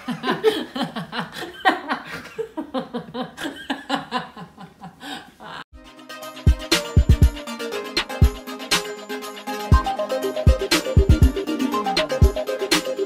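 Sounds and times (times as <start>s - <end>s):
man and woman laughing: 0.0s - 5.6s
music: 5.7s - 13.0s.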